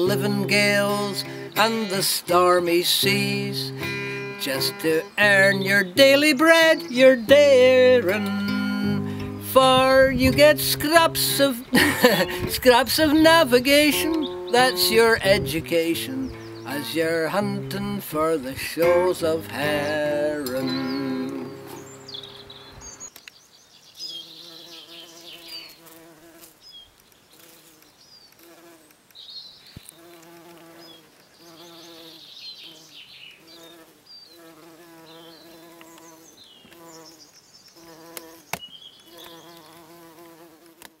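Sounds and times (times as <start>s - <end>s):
bumblebee buzzing in flight: 24.1s - 26.6s, 27.3s - 28.9s, 29.8s - 37.2s, 37.8s - 41.0s.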